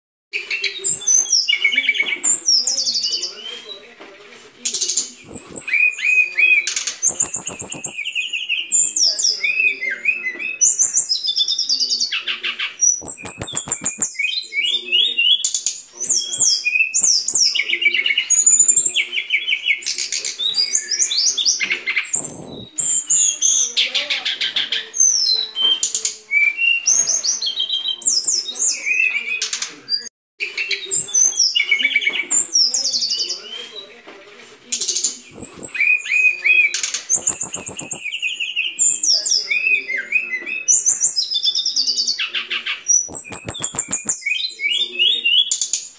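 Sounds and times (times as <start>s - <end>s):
bird song with trills: 0.3s - 3.9s, 4.6s - 34.0s, 34.7s - 45.9s.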